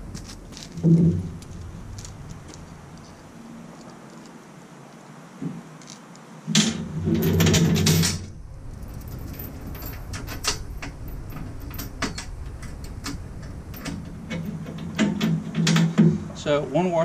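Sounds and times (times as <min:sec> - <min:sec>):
chain links clinking on steel: 0:07.2 - 0:14.9.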